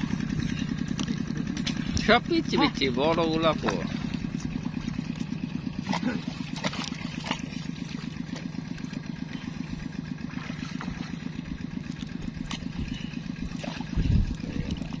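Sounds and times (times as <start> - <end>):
small engine puttering: 0.0 - 15.0
stick splashing in water: 5.8 - 8.5, 10.3 - 11.3, 11.9 - 14.0.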